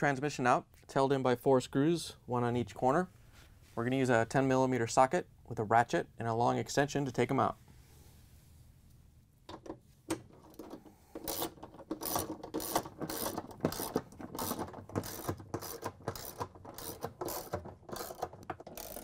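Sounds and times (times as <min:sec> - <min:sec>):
ratchet wrench clicking: 0:11.2 - 0:19.0.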